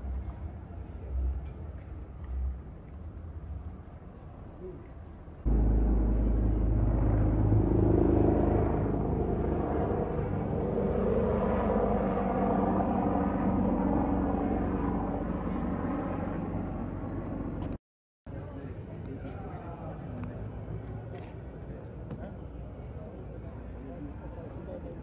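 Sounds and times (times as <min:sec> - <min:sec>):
helicopter rotor drone: 0:05.5 - 0:17.8.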